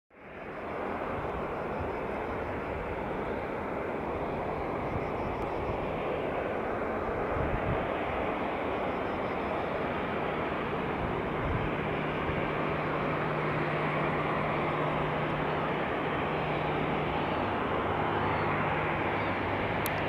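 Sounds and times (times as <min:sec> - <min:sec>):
jet airliner noise: 0:00.1 - 0:20.0.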